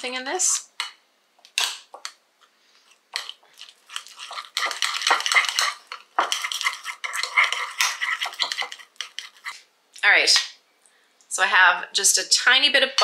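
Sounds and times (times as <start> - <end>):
utensil scraping a bowl: 2.9 - 9.6.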